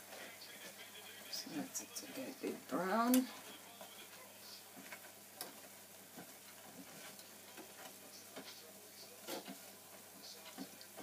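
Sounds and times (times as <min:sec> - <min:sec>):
dough frying in hot oil: 0:00.0 - 0:11.0
utensil tapping and scraping basket: 0:03.0 - 0:11.0.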